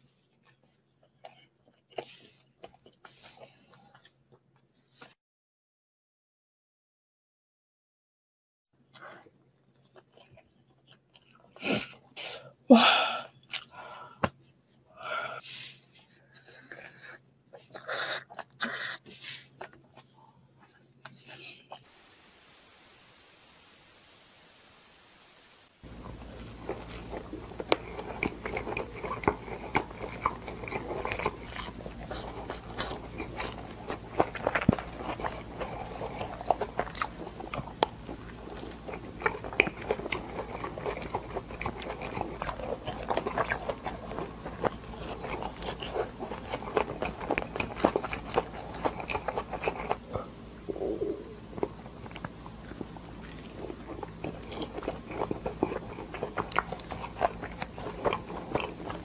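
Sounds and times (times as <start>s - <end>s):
biting and wet chewing: 0.3s - 5.1s, 8.9s - 12.2s, 25.8s - 59.0s
faint low hum: 8.8s - 59.0s.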